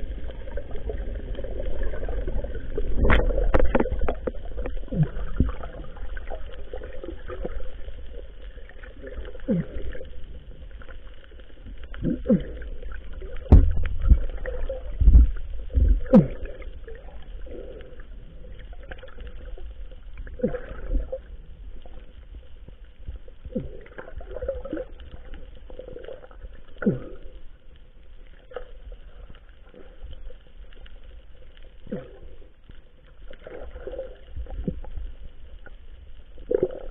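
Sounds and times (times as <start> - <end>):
underwater gurgling: 0.0 - 36.9
dull underwater thumps: 13.5 - 16.4.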